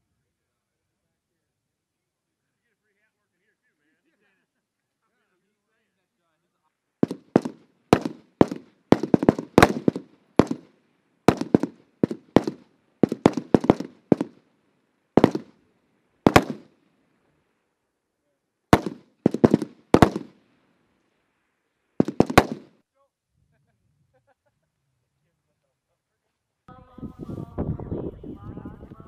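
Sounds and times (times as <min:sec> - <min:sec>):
rifle shots with echo: 0:07.0 - 0:10.7, 0:11.3 - 0:14.4, 0:15.2 - 0:15.6, 0:16.2 - 0:16.8, 0:18.8 - 0:20.4, 0:22.0 - 0:22.8.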